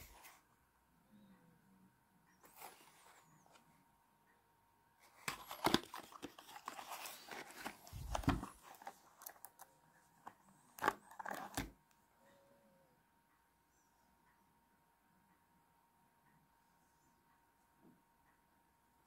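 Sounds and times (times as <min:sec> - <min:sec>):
cardboard rustling and scraping: 0:05.2 - 0:09.5.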